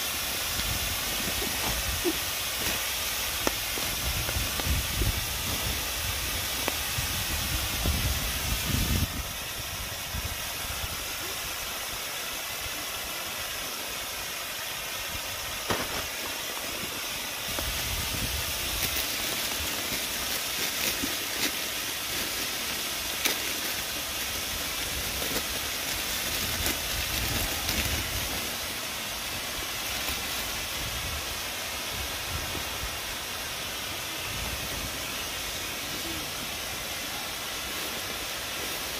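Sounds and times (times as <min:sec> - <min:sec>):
burning wood crackling: 0:00.1 - 0:09.2, 0:15.4 - 0:32.0.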